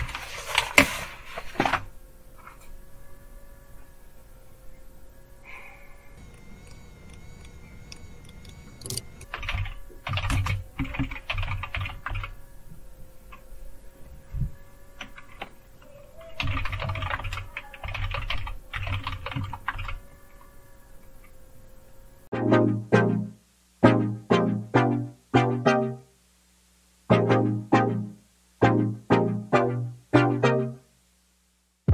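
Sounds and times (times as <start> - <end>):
keyboard typing: 6.2 - 12.4, 16.4 - 20.0.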